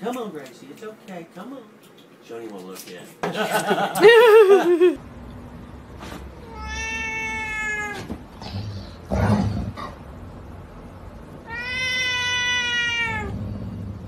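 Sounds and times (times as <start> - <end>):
cat meowing: 6.4 - 8.1, 11.4 - 13.4
cat yowling: 6.4 - 8.1, 11.4 - 13.4.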